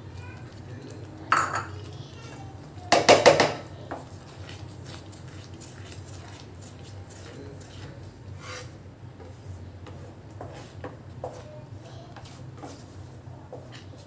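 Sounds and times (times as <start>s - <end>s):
wooden spatula scraping pan: 8.3s - 11.5s.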